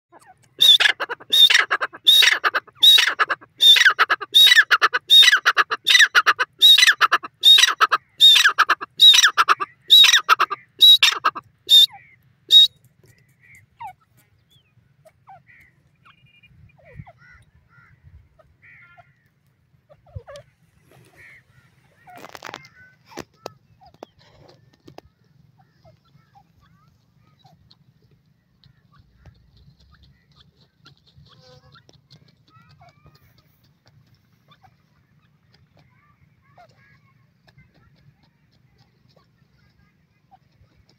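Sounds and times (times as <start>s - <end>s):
francolin calling: 0.2s - 12.8s.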